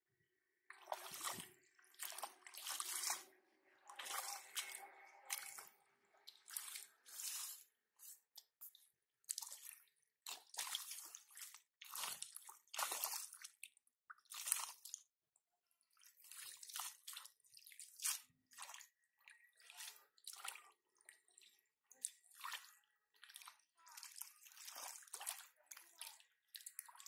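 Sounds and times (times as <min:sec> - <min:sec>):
bare feet squelching in mud: 0:00.8 - 0:03.3, 0:04.0 - 0:08.7, 0:09.3 - 0:13.6, 0:22.4 - 0:25.8.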